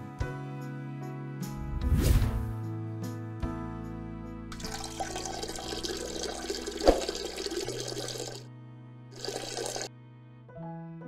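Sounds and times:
soft background music: 0:00.0 - 0:11.0
trickling splashing water stream: 0:04.5 - 0:08.4, 0:09.2 - 0:09.9.

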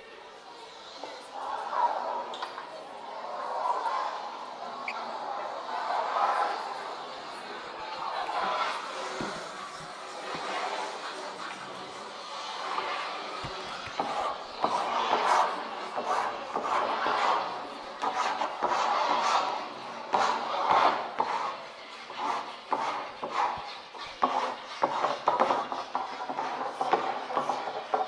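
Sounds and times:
marker pens scratching on paper: 0:12.6 - 0:28.0.

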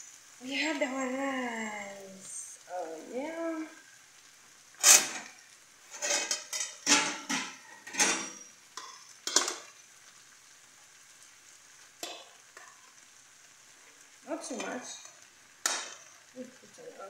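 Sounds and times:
metal spoon scraping frying pan: 0:04.8 - 0:09.7.

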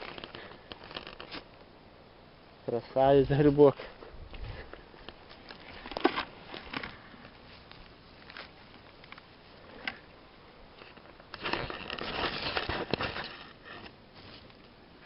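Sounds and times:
forest litter crackling and rustling: 0:02.8 - 0:10.1, 0:10.7 - 0:15.0.

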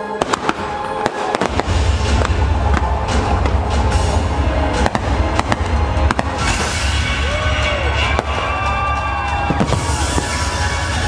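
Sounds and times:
fireworks bangs and crackles: 0:00.0 - 0:11.0
loud music: 0:00.0 - 0:11.0.

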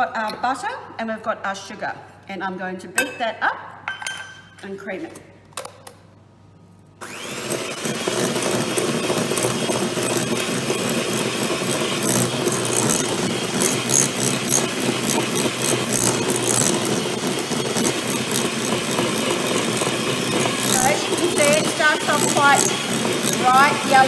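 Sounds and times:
electric hand mixer running: 0:07.0 - 0:24.0.

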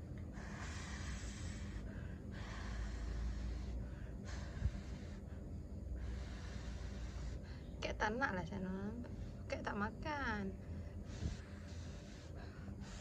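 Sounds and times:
person breathing close: 0:00.0 - 0:07.8, 0:10.6 - 0:13.0.

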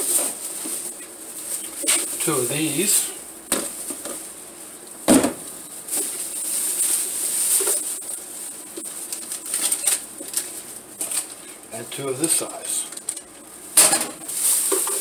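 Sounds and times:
plastic bag rustling: 0:00.0 - 0:15.0
plastic containers handled: 0:12.3 - 0:15.0.

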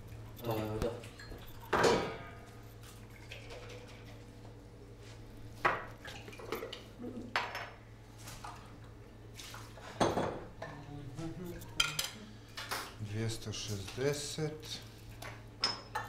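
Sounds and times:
glassware clinking: 0:09.9 - 0:10.8, 0:11.7 - 0:13.0, 0:15.6 - 0:16.0.

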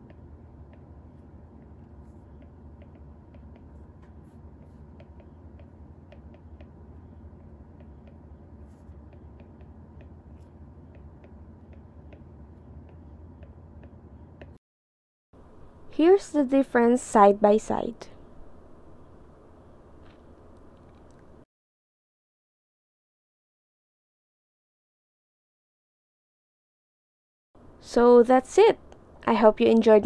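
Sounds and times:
steady low hum: 0:00.0 - 0:14.6, 0:15.4 - 0:21.4.

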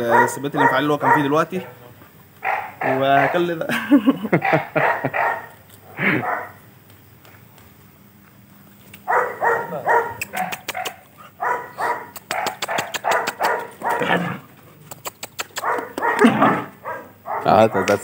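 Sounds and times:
dog barking: 0:00.0 - 0:01.8, 0:02.4 - 0:03.5, 0:04.4 - 0:05.6, 0:06.2 - 0:06.6, 0:09.0 - 0:14.3, 0:15.6 - 0:18.0.

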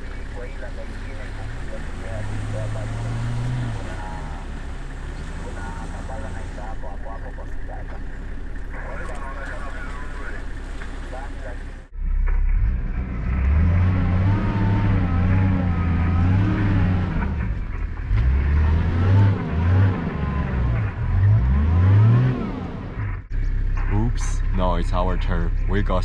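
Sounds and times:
vehicle engine revving: 0:00.0 - 0:26.0.

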